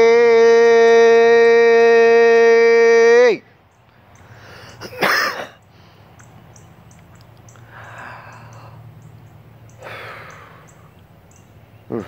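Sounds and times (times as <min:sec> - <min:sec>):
boy breathing out: 0:04.3 - 0:04.8, 0:07.6 - 0:08.9, 0:09.8 - 0:10.7.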